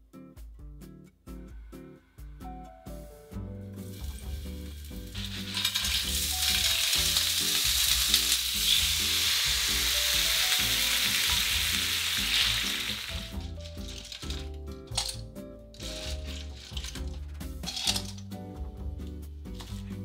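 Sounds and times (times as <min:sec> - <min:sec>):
soft background music: 0:00.0 - 0:20.0
clams sizzling in hot oil: 0:03.8 - 0:14.5.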